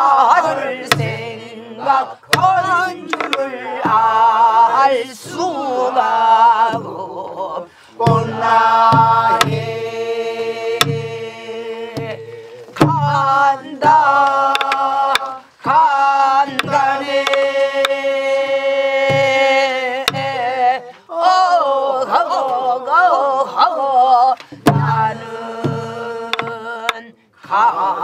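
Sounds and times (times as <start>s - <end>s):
woman singing folk song: 0.0s - 28.0s
barrel drum thumps: 0.8s - 1.4s, 2.2s - 7.1s, 8.0s - 17.9s, 18.9s - 20.6s, 24.4s - 27.0s.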